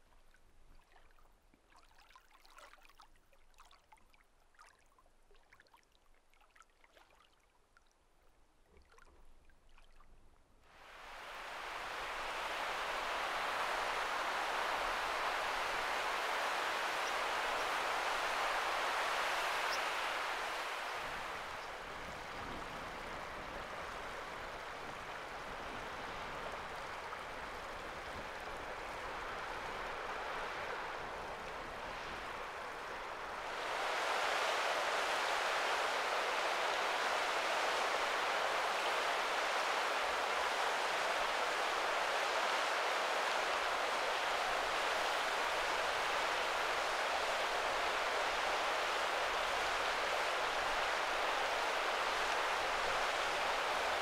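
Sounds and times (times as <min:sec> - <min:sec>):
stream running over stones: 0:10.9 - 0:54.0.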